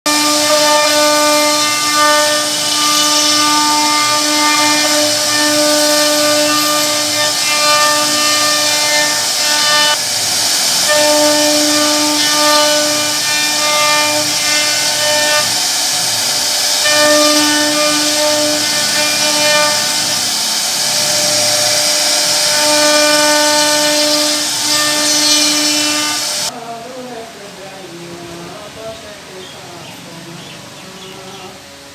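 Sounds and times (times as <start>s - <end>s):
router spindle whining: 0.1s - 26.5s
wood cutting hiss: 0.1s - 26.5s.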